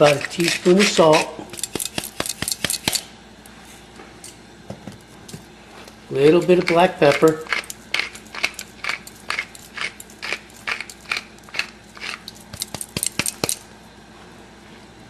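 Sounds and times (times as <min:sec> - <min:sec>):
pepper mill grinding: 0:00.0 - 0:03.1, 0:06.1 - 0:13.7.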